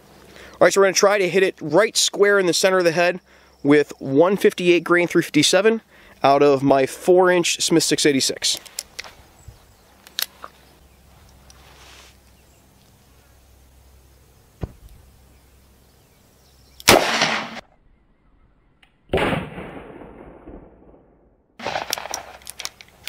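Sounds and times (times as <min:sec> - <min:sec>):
revolver gunshot: 0:16.8 - 0:17.6, 0:19.1 - 0:22.4.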